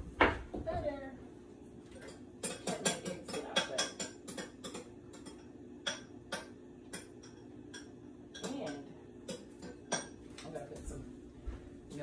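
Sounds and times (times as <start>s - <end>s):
kitchen utensils clicking and tapping: 2.0s - 10.9s.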